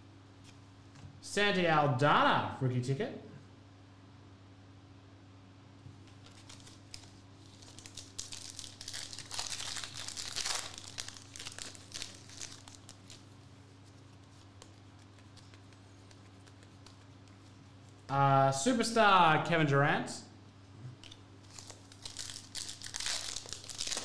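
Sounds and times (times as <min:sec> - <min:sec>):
foil wrapper tearing and crinkling: 0:06.1 - 0:13.4, 0:21.5 - 0:24.0.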